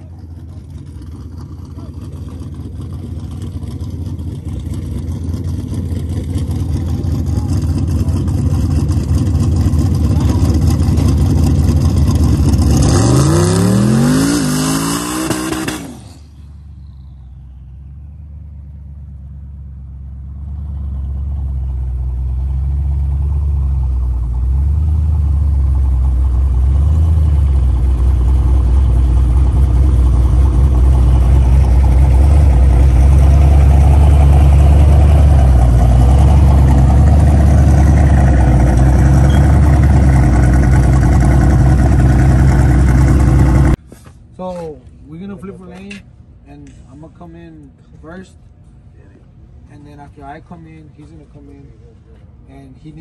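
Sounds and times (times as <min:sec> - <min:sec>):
engine idling with uneven rumble: 0:00.0 - 0:12.8, 0:16.1 - 0:53.0
engine revving high: 0:11.9 - 0:16.4.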